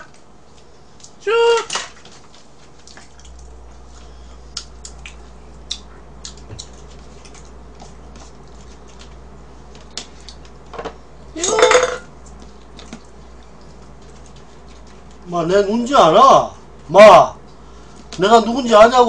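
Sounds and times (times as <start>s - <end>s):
high-pitched vocal cry: 11.4s - 11.8s.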